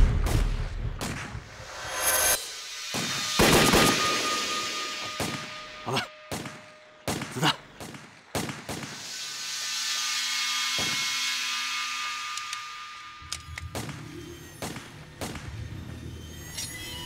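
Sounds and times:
pistol gunshots: 6.3 - 9.0.

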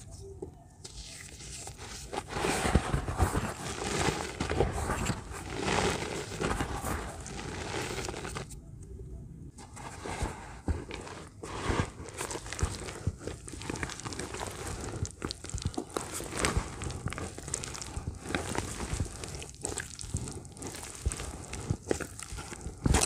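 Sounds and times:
hand crumbling wet dirt: 9.8 - 23.0.

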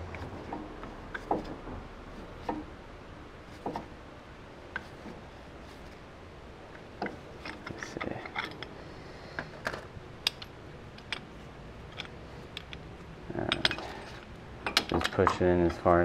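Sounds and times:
metal tool clicks and clinks: 13.4 - 14.0.

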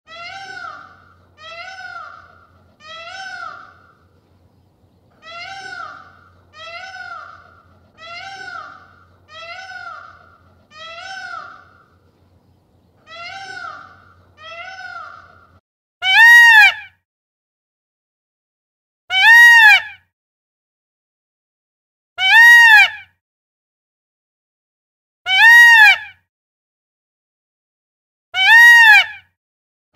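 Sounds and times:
peacock calling: 0.1 - 16.8.

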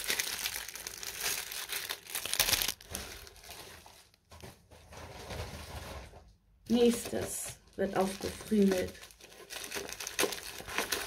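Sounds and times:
plastic bags crinkling: 0.0 - 4.3, 6.7 - 11.0.

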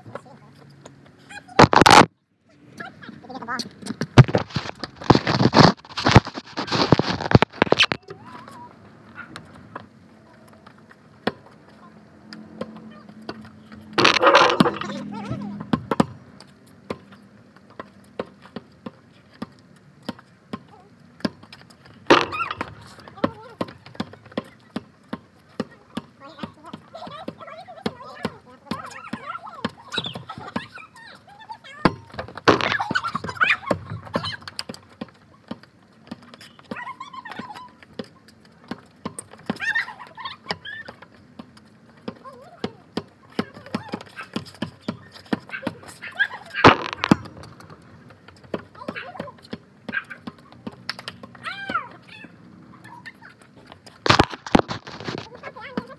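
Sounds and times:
footsteps on pavement: 3.2 - 28.4, 41.1 - 51.8
footsteps tapping: 3.6 - 8.0, 21.3 - 24.5, 32.2 - 33.1, 46.6 - 49.7, 53.8 - 55.3.

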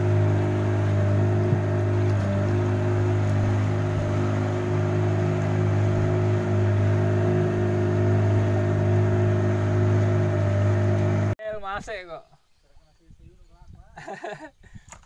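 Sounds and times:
boat engine humming: 0.0 - 11.4.

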